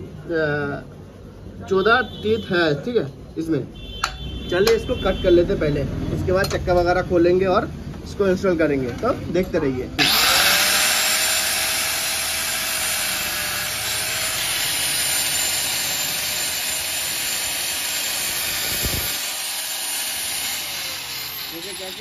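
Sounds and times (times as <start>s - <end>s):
angle grinder cutting metal chain: 10.0s - 22.0s.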